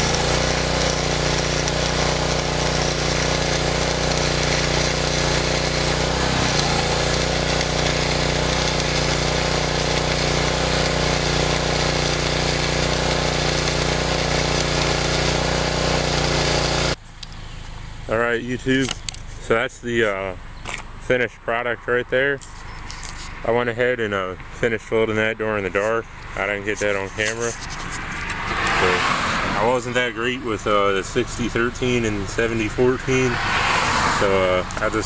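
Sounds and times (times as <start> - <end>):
welding arc crackling and sizzling: 0.0 - 17.0.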